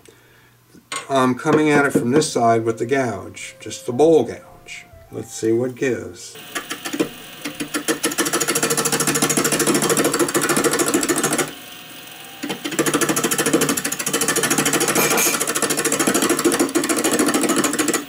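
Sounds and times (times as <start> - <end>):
gouge hammering on spinning wood: 6.4 - 11.6, 12.4 - 18.0.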